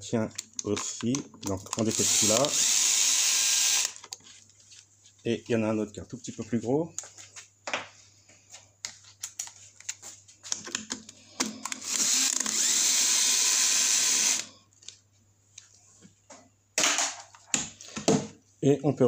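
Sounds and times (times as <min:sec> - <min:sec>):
cordless screwdriver running: 0:01.7 - 0:04.1, 0:11.4 - 0:14.5.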